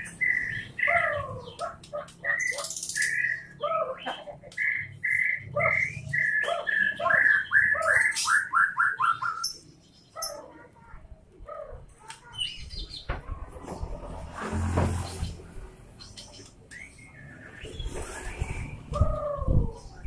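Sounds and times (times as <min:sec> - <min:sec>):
bird singing whistled notes: 0:04.6 - 0:09.6.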